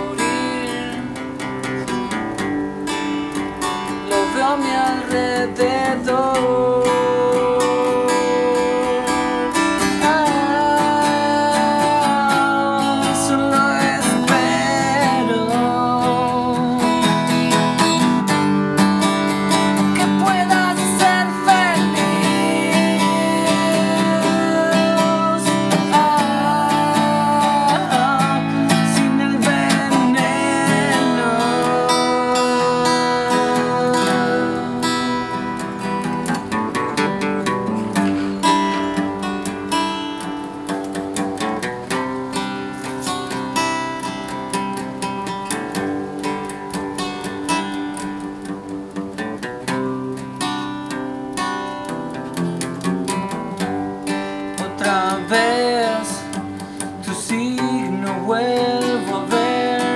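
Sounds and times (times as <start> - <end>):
man singing: 0.0 - 2.2, 3.8 - 18.3, 19.3 - 39.8, 53.1 - 59.9
acoustic guitar strummed: 0.0 - 59.9.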